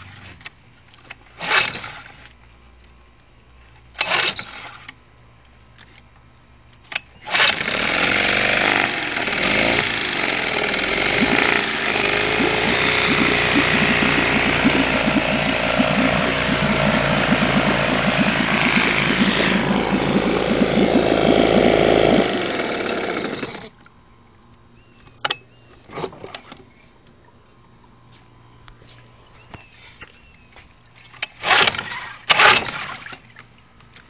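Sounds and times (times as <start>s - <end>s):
propeller churning water: 7.3s - 24.7s
outboard motor running: 7.4s - 23.8s.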